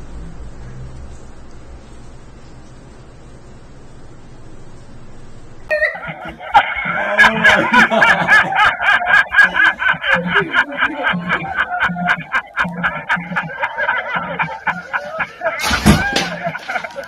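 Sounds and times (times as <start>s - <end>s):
man laughing in high cackles: 5.7s - 17.0s.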